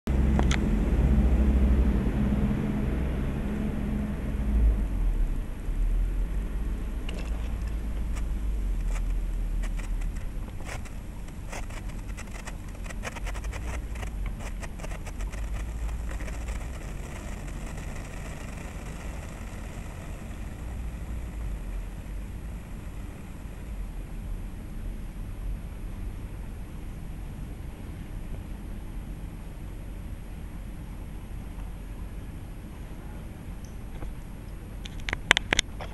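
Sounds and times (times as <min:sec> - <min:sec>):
steady low rumble: 0:00.1 - 0:35.0
sparkler crackling: 0:08.8 - 0:24.0.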